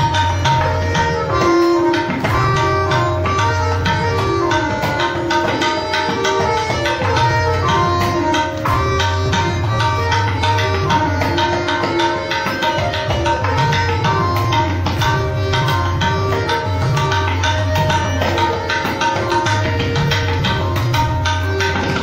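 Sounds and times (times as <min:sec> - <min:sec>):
cajon rhythm: 0:00.0 - 0:22.0
harmonium melody: 0:00.0 - 0:22.0
tabla strokes: 0:00.0 - 0:22.0.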